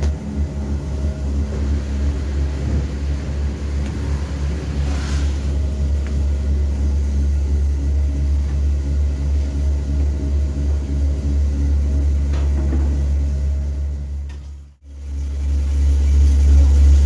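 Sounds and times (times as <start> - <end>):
grinding machine rumbling: 0.0 - 17.0.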